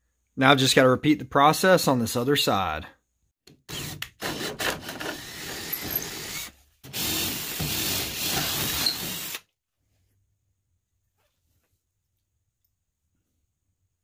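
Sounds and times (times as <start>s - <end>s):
cordless drill boring through metal: 3.7s - 9.4s.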